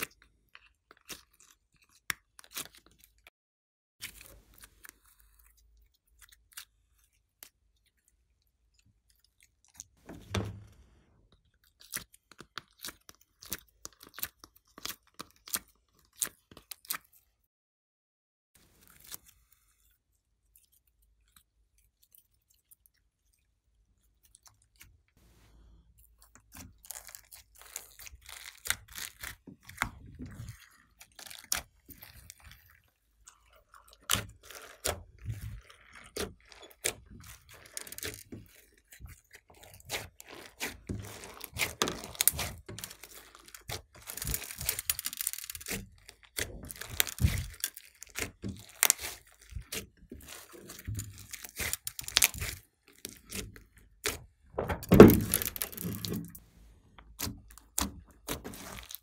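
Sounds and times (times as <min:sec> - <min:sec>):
slime squishing: 0:00.0 - 0:03.3, 0:04.0 - 0:17.3, 0:18.7 - 0:59.0
crunching crackles and pops: 0:39.2 - 0:54.2.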